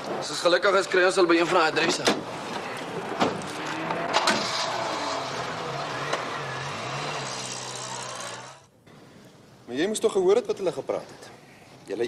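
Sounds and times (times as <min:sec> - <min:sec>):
car doors slamming: 0:03.1 - 0:04.8.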